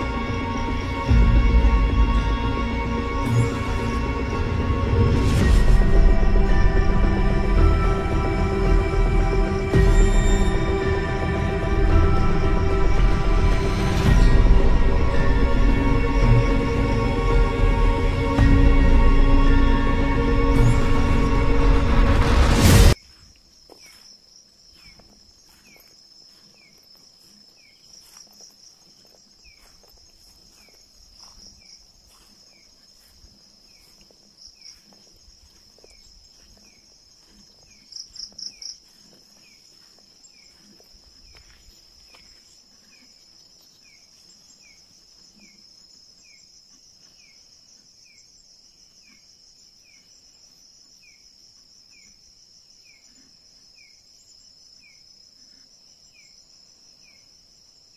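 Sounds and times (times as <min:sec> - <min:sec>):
cricket trill: 0:00.0 - 0:57.9
footsteps on forest floor: 0:22.9 - 0:48.2.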